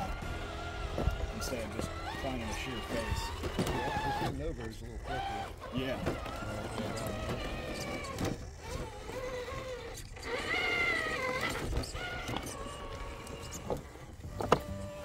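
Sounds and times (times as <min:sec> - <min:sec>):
rc car electric motor whining: 0:00.0 - 0:15.0.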